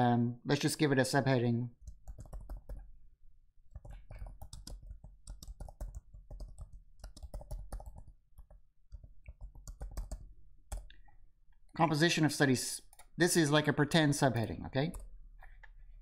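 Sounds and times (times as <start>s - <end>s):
computer keyboard typing: 1.8s - 2.9s, 3.7s - 11.0s, 12.8s - 13.1s, 14.2s - 15.2s.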